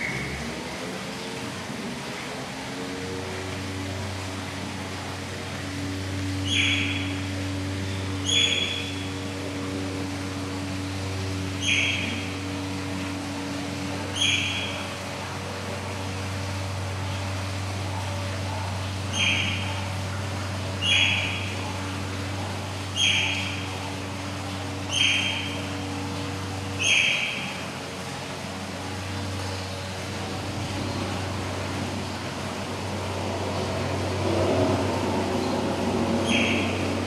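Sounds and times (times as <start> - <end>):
steady low hum: 0.0 - 37.0
otter calling: 6.4 - 9.2, 11.5 - 12.6, 14.0 - 15.0, 18.6 - 24.1, 24.8 - 27.7, 36.2 - 37.0.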